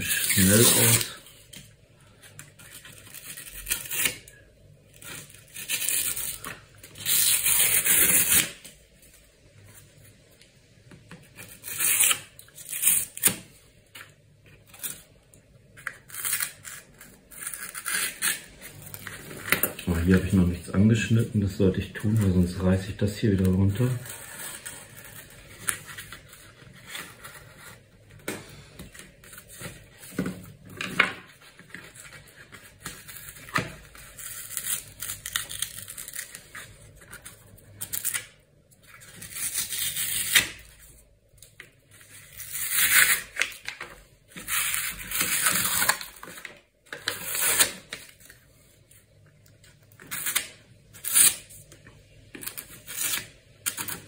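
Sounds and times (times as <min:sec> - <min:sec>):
cardboard ripping and scraping: 0:00.0 - 0:01.2, 0:44.4 - 0:46.4.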